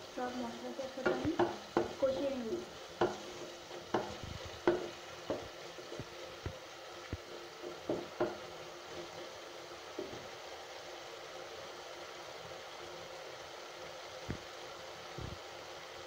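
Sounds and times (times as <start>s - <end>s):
wooden spatula scraping a pan: 0.0s - 10.4s
paste sizzling in a pan: 0.0s - 16.0s.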